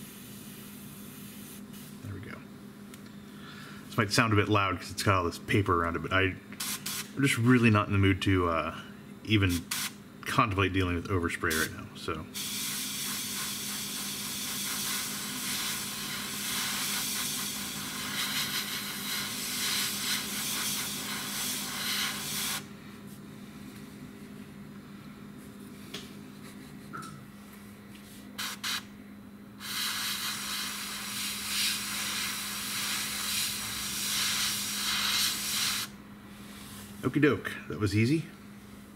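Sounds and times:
airbrush hissing: 0:12.4 - 0:22.7, 0:28.4 - 0:28.8, 0:29.6 - 0:35.9.

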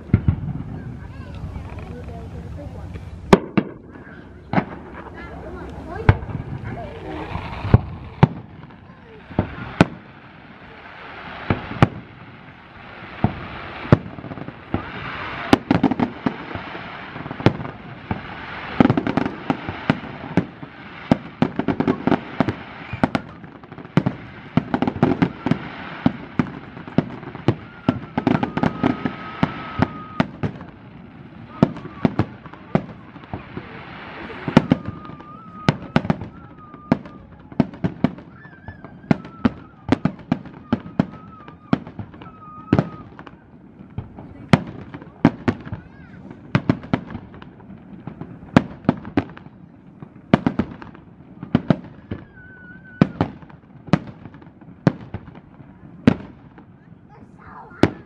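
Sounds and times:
firework crackling: 0:00.0 - 0:58.0
firework shells bursting: 0:02.9 - 0:10.1.

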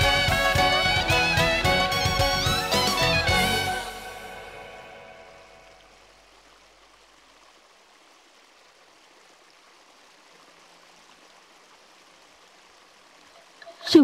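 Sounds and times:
music: 0:00.0 - 0:05.8.

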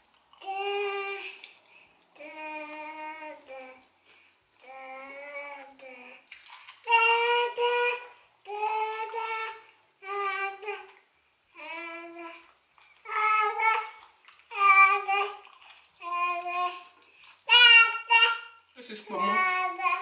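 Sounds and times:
child singing drawn-out notes: 0:00.4 - 0:01.4, 0:02.2 - 0:03.9, 0:04.6 - 0:06.2, 0:06.8 - 0:18.6, 0:19.2 - 0:20.0.

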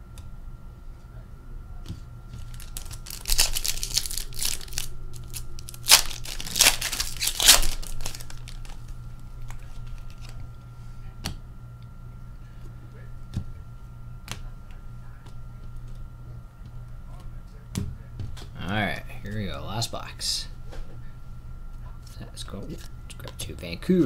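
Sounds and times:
faint steady hum: 0:00.0 - 0:24.0
foil wrapper crinkling and tearing: 0:02.4 - 0:10.4.

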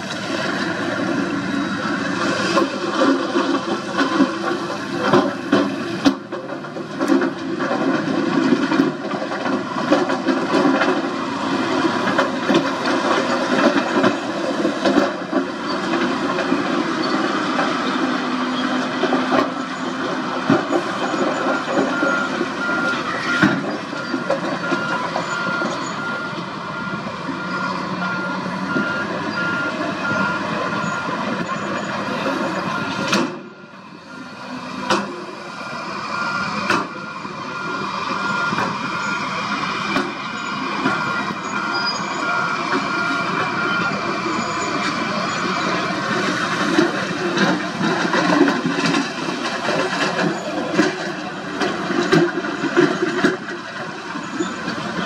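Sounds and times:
diesel engines under load: 0:00.0 - 0:55.0
reversing alarm beeping: 0:19.4 - 0:34.6, 0:35.5 - 0:46.4.

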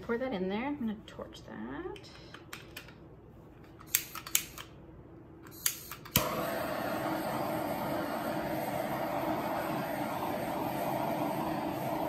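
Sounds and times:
torch igniter clicks: 0:03.8 - 0:04.8, 0:05.4 - 0:07.5
butane torch hissing flame: 0:05.6 - 0:12.0.

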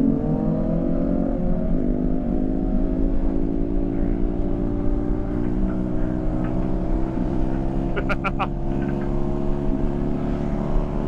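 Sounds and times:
motorcycle engine revving: 0:00.0 - 0:11.0
road and wind noise: 0:00.0 - 0:11.0.

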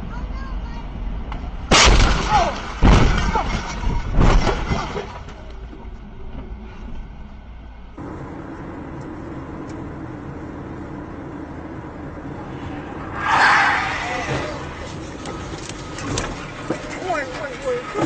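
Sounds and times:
road noise of car driving: 0:00.0 - 0:18.0
breaking glass: 0:01.7 - 0:05.2
car crash impact: 0:01.7 - 0:05.4, 0:13.0 - 0:17.0
crunching metal: 0:01.7 - 0:05.5.

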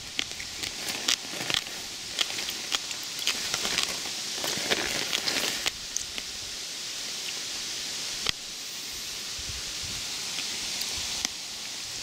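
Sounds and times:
twigs crackling and snapping: 0:00.0 - 0:06.3
leaves and canes rustling: 0:00.0 - 0:12.0.

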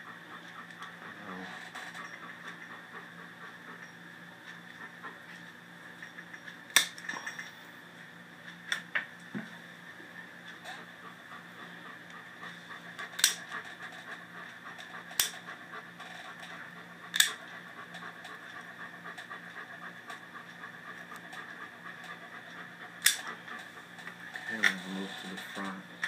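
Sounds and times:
steady background noise: 0:00.0 - 0:26.0
nail clippers clicking: 0:13.2 - 0:13.4, 0:17.1 - 0:17.4, 0:23.0 - 0:23.2.

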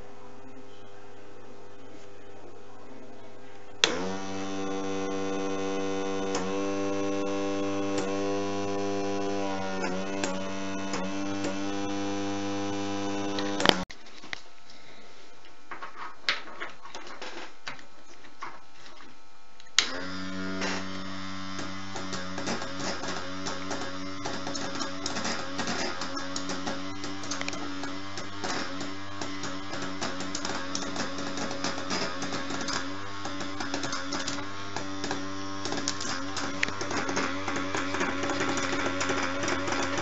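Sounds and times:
electric air compressor humming: 0:03.7 - 0:13.9, 0:19.8 - 0:40.0.

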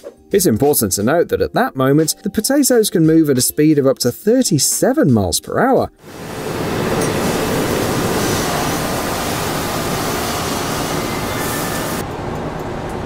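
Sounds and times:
machinery rushing noise: 0:06.0 - 0:12.1.

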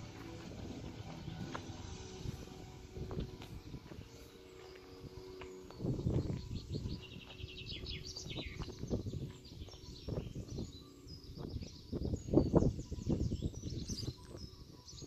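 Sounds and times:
low rumbles: 0:00.0 - 0:13.7
birds chirping and singing: 0:00.0 - 0:15.0.

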